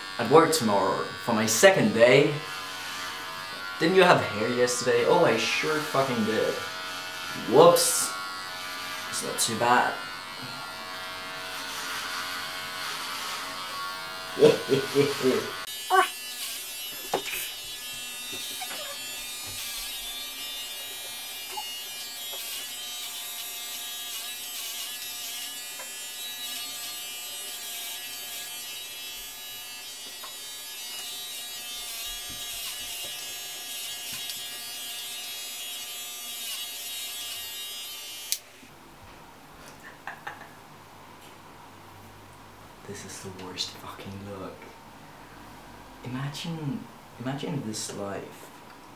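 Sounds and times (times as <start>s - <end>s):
electric hair clippers buzzing: 0.0s - 38.7s.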